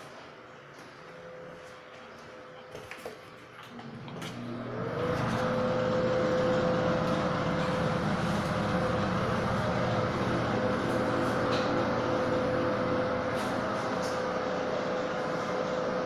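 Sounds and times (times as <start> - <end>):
exhaust fan whirring: 3.4 - 16.0.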